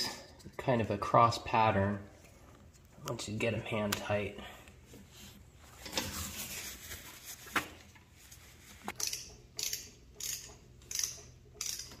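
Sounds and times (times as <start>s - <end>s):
sharp metal clicks: 9.0s - 12.0s
socket ratchet clicking: 9.0s - 12.0s.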